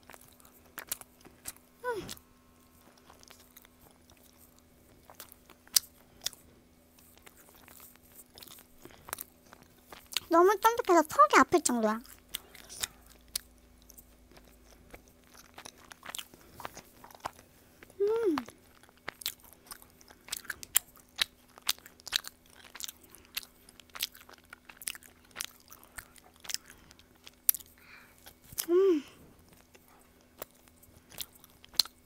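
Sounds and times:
wet chewing and mouth smacks: 0.0 - 1.7, 2.8 - 10.3, 12.0 - 28.7, 29.4 - 32.0
person humming: 1.8 - 2.2, 18.0 - 18.5, 28.6 - 29.2.

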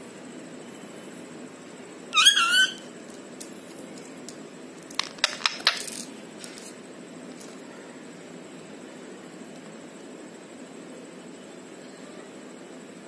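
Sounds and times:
parakeet squawk: 2.1 - 2.9.

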